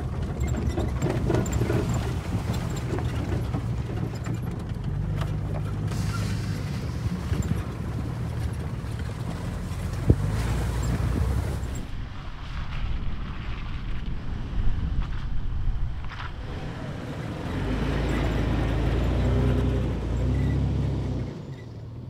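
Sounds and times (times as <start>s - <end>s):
low engine and road rumble: 0.0s - 22.0s
wind on microphone: 9.9s - 17.2s.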